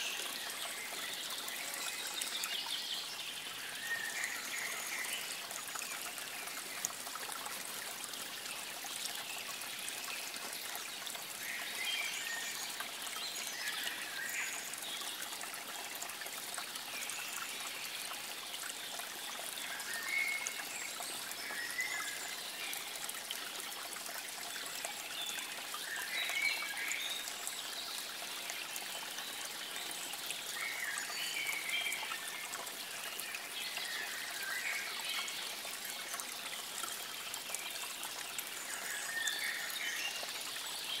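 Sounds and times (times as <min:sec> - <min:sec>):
water trickling: 0:00.0 - 0:41.0.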